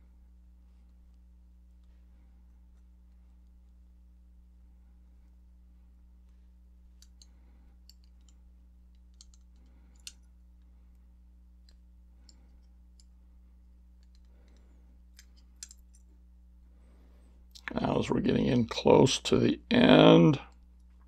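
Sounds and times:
low steady hum: 0.0 - 21.0
pliers clicking on wire: 7.0 - 10.3, 15.2 - 16.1.

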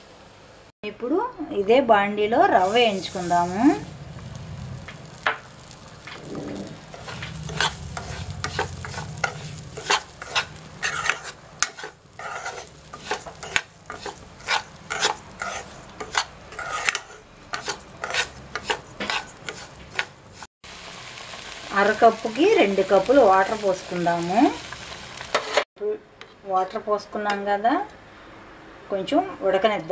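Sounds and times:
light sizzle: 2.3 - 25.7
metal spatula scraping pan: 2.6 - 20.5.

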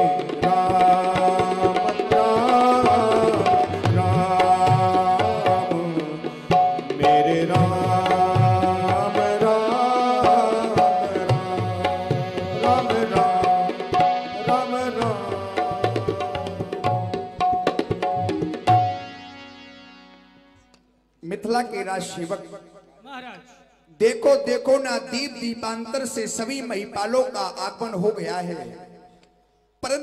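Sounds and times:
man singing devotional song: 0.0 - 17.8, 21.3 - 29.1
hand drum playing: 10.3 - 19.1.

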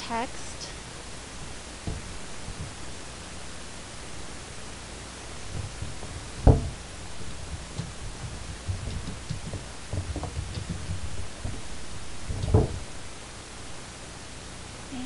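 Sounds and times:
microphone hiss: 0.0 - 15.0
sharp knock: 5.5 - 11.6.

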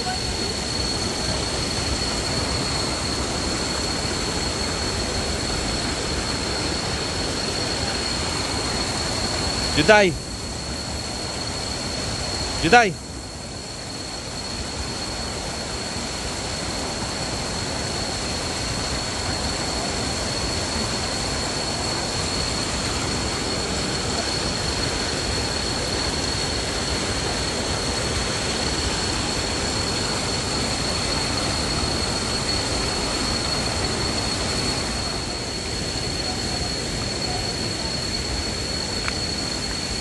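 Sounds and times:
high-pitched whine: 0.0 - 40.0
rush of falling water: 0.0 - 40.0.

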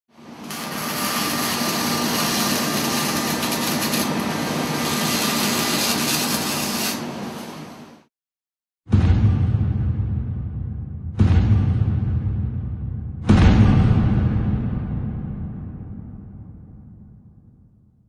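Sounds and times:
welding arc crackling: 0.4 - 7.8.

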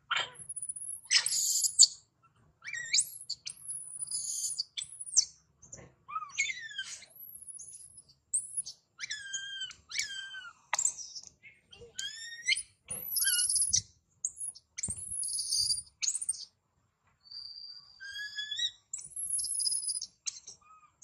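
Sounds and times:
infant monkey screaming: 0.1 - 1.7, 2.6 - 3.2, 6.1 - 7.1, 9.0 - 10.6, 11.7 - 13.8, 18.0 - 18.8.

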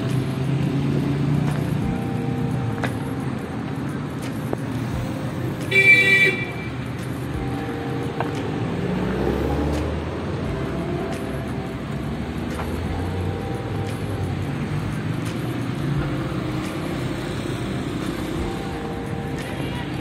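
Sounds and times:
street traffic: 0.0 - 20.0
vehicle horn toot: 5.7 - 6.8.

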